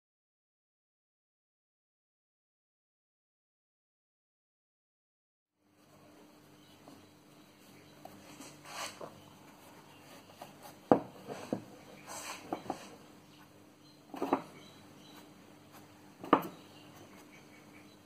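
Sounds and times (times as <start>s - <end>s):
faint steady hum: 5.6s - 18.0s.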